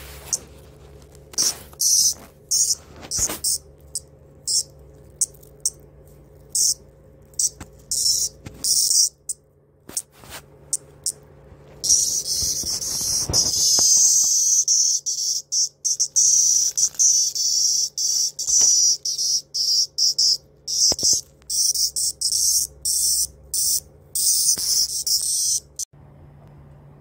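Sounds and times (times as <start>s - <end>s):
cicada buzzing: 1.4s - 5.8s, 6.5s - 9.3s, 11.8s - 25.8s.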